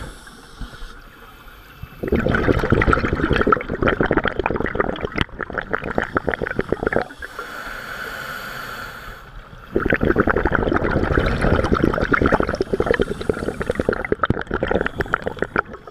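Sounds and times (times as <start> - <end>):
regulator inhale hiss: 0.0 - 2.0, 6.0 - 10.4, 12.4 - 15.9
exhaled bubbles rushing: 2.0 - 7.2, 9.7 - 15.9.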